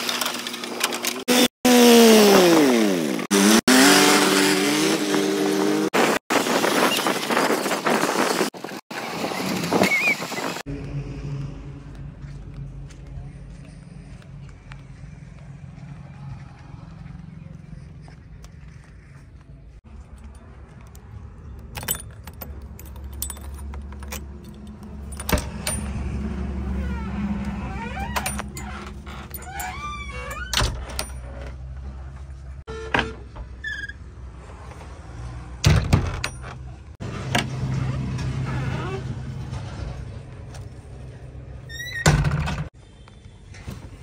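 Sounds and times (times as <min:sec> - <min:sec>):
vehicle engine: 0:00.0 - 0:44.0
jingling rattles: 0:21.7 - 0:26.2.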